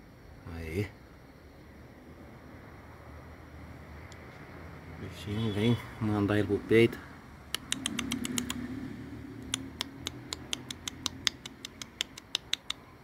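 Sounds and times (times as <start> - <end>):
mouth clicks imitating gecko: 7.5 - 8.8, 9.4 - 13.0.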